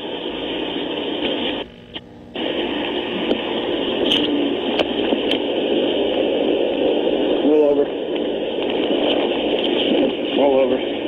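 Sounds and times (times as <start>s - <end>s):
radio-like microphone hiss: 0.0s - 11.0s
sharp clicks and crackles: 1.2s - 5.6s.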